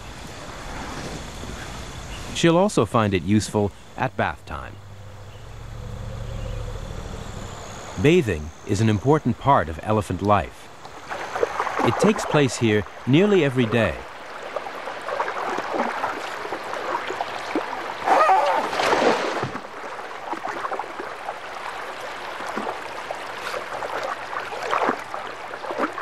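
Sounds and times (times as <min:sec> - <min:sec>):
elephants splashing in river water: 0:11.0 - 0:12.5, 0:13.2 - 0:26.0.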